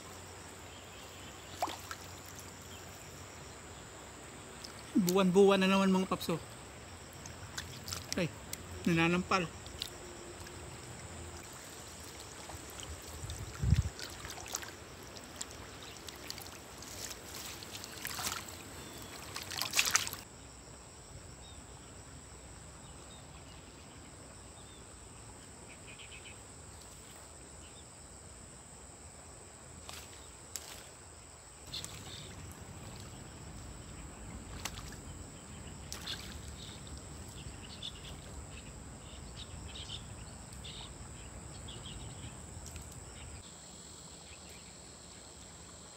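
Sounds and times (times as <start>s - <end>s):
river water: 0.0s - 20.3s, 29.4s - 43.2s
water splashing and dripping: 1.5s - 2.7s, 7.1s - 8.8s, 9.6s - 10.6s, 11.4s - 20.3s, 34.4s - 35.1s, 35.8s - 37.2s.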